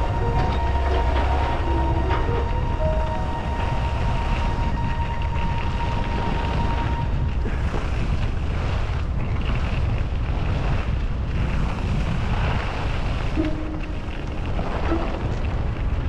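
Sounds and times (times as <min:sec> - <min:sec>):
wind buffeting microphone: 0:00.0 - 0:16.0
skis sliding on snow: 0:07.4 - 0:16.0.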